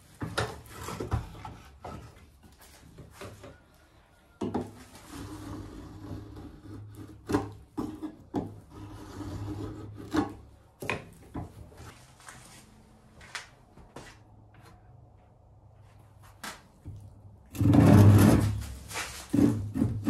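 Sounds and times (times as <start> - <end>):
hand tool scraping wood: 0.0 - 3.6, 4.6 - 12.5, 17.5 - 20.0.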